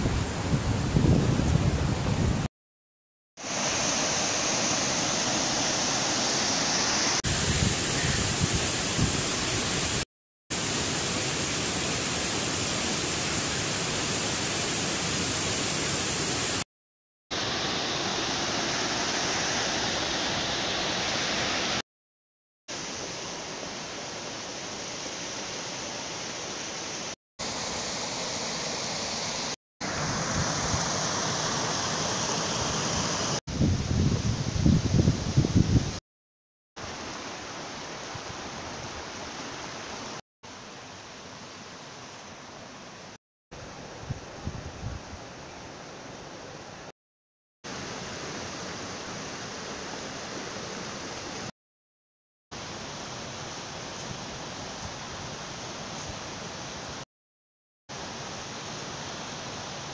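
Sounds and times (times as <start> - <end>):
stream rushing over rocks: 3.4 - 16.6, 17.3 - 21.8, 22.7 - 33.4, 36.8 - 43.9, 47.7 - 51.5, 52.6 - 57.0, 57.9 - 59.9.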